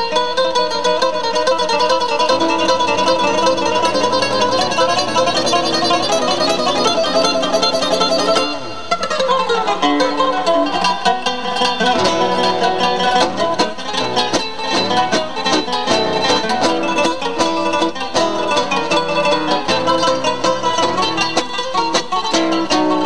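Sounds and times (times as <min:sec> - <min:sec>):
acoustic guitar duet: 0:00.0 - 0:23.0.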